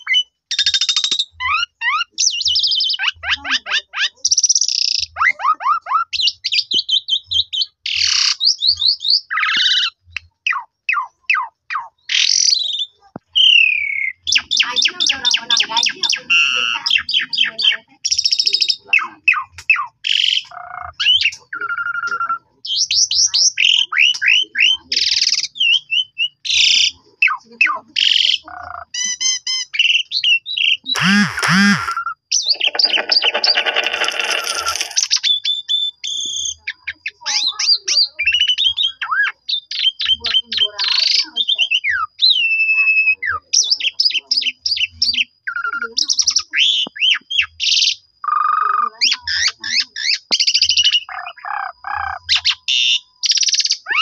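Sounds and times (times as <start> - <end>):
starling singing: 31.0 - 33.1.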